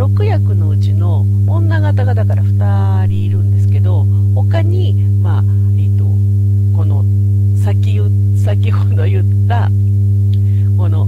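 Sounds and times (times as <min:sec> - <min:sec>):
woman talking: 0:00.0 - 0:06.2, 0:07.6 - 0:09.8, 0:10.7 - 0:11.0
low electrical hum: 0:00.0 - 0:11.0.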